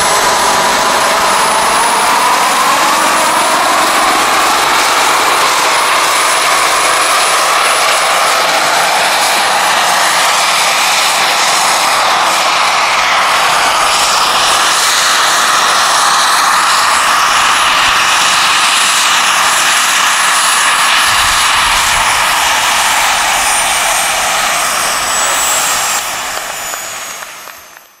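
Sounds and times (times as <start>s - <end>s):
model turbine engine whine: 0.0s - 28.0s
high whistle falling in pitch: 20.4s - 28.0s.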